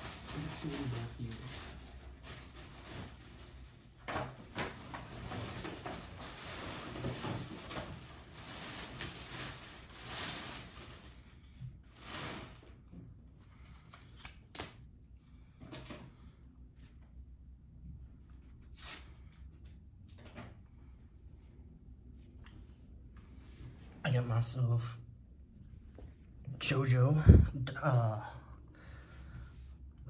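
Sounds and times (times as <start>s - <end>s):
rustling of items on a tabletop: 0.0s - 14.4s.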